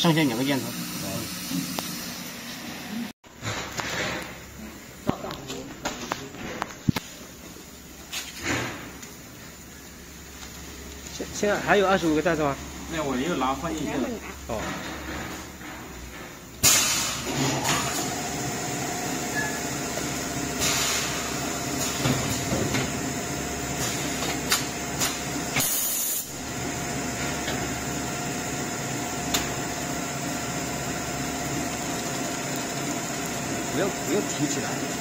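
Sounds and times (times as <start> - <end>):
bag-sealing machine hiss and hum: 16.6 - 35.0.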